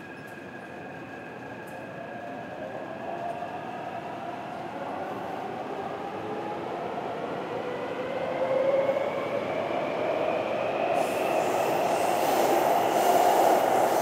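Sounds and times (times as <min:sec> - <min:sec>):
train rumbling through a tunnel: 0:00.0 - 0:14.0
high hiss: 0:11.0 - 0:14.0.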